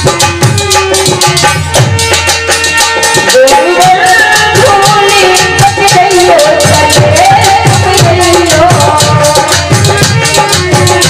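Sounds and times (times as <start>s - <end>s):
drum strokes: 0.0s - 11.0s
instrumental line: 0.0s - 11.0s
rattle percussion: 0.0s - 11.0s
woman singing: 3.2s - 11.0s.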